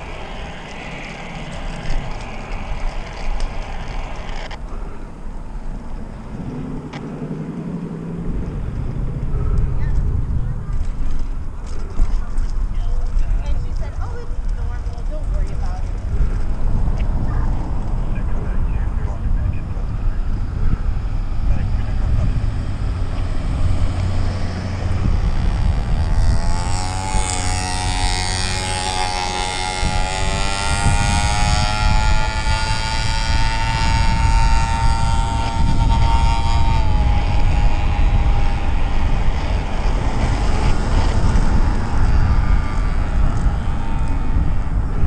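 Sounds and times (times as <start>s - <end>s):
electric motor whining: 0.0s - 4.6s, 19.6s - 45.0s
road noise: 0.0s - 45.0s
wind on microphone: 0.0s - 45.0s.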